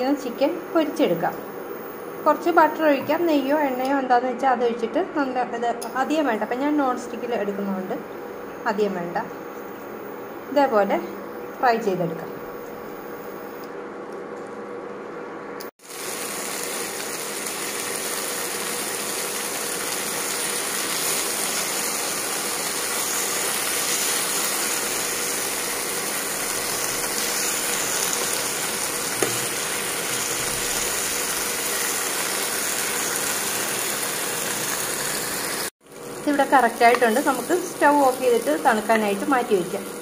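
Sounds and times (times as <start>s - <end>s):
chicken sizzling in a pan: 15.8s - 40.0s.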